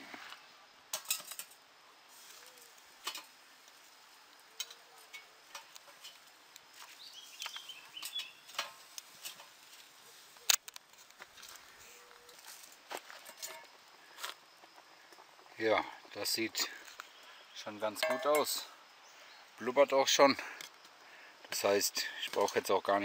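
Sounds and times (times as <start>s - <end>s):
wood fire crackling and popping: 0.9s - 1.6s, 2.2s - 17.2s.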